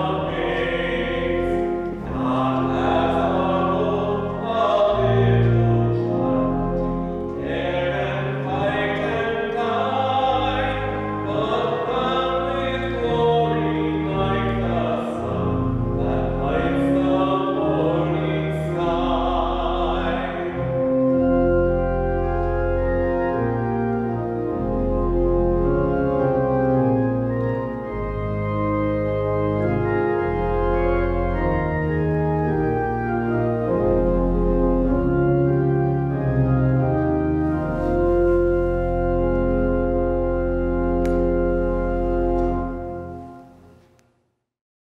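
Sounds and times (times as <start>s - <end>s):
voices singing a hymn: 0.0s - 22.1s
organ chords: 0.0s - 44.0s.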